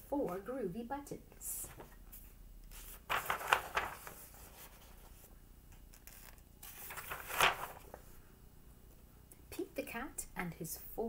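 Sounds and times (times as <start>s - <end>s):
book pages turning: 1.6s - 8.2s.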